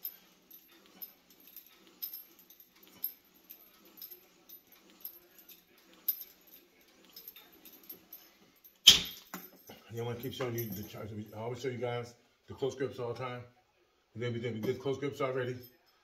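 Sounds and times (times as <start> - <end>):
cable machine chain clinking: 0.0 - 11.4.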